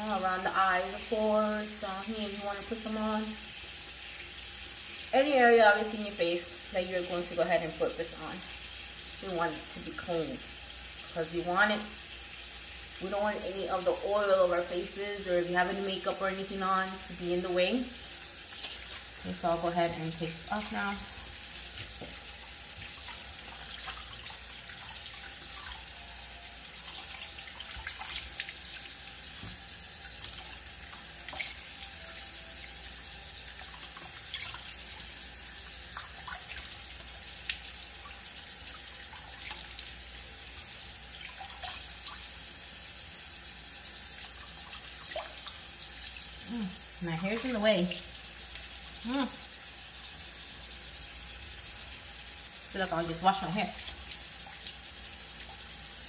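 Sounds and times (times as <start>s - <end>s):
sink tap running: 0.0s - 56.0s
water splashes: 18.5s - 25.9s.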